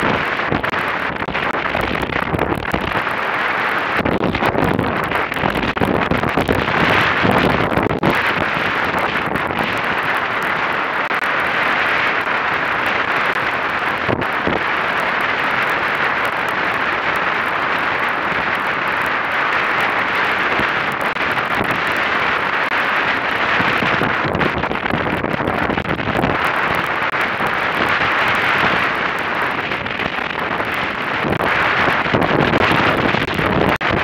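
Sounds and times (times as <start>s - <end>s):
wind rushing: 0.0s - 16.1s
water rushing over hull: 0.0s - 34.0s.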